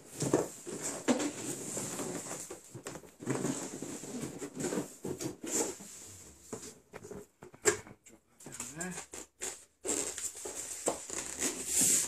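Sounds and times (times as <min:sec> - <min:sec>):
cardboard box rubbing and scraping: 0:09.9 - 0:12.0.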